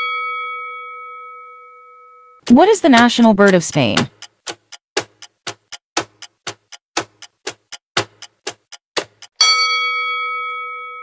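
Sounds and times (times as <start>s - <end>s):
clock ticking: 2.4s - 9.4s.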